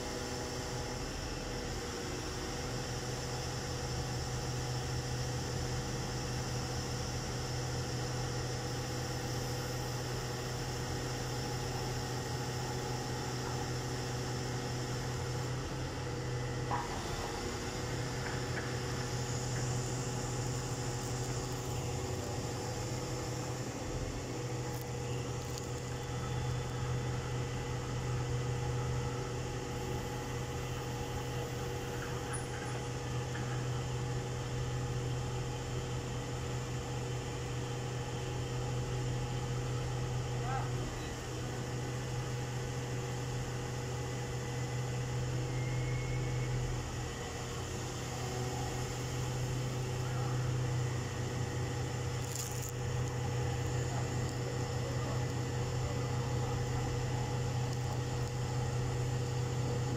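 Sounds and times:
diesel engines humming: 8.8 - 36.0.

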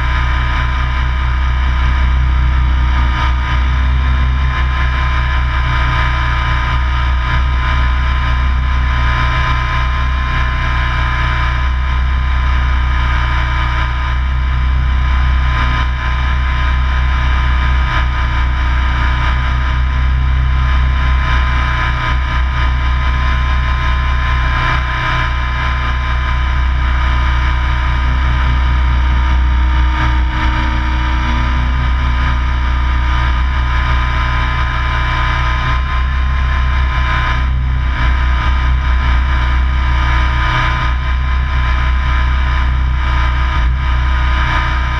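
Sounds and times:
helicopter motor whine: 26.4 - 35.0.

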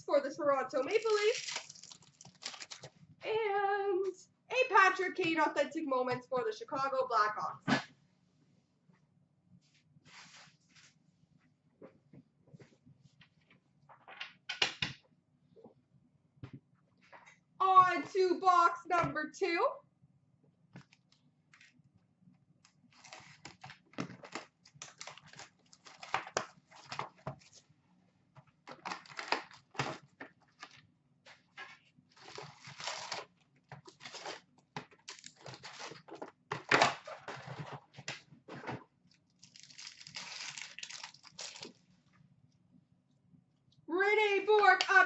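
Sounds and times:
paper and cardboard rustling: 28.7 - 38.8.

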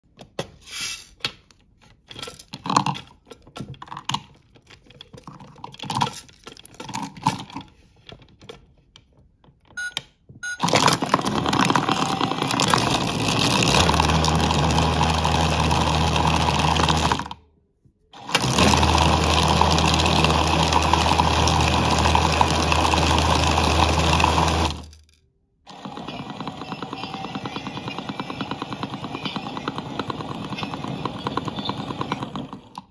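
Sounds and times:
plastic toy clicks and knocks: 1.2 - 14.3
plastic figures rattling in drum: 2.1 - 7.7, 10.6 - 17.4, 18.2 - 32.9
toy motor whirring: 10.6 - 17.3, 18.2 - 32.9.

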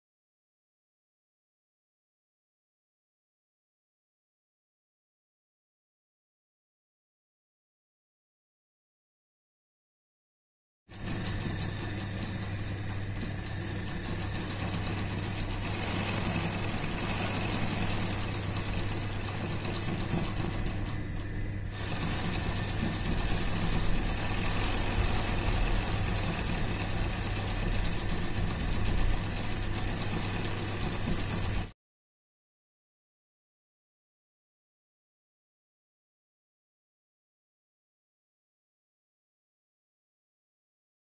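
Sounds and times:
motor hum: 10.9 - 31.7
sewing machine stitching: 10.9 - 31.8.

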